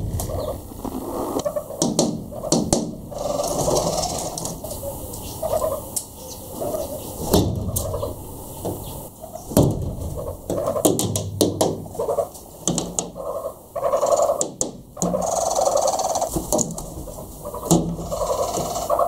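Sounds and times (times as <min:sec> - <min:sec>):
short low bird calls: 0:00.0 - 0:09.6, 0:15.0 - 0:16.3, 0:17.1 - 0:19.0
wings fluttering: 0:00.0 - 0:19.0
bird knocking against glass window: 0:01.6 - 0:03.2, 0:09.5 - 0:11.9.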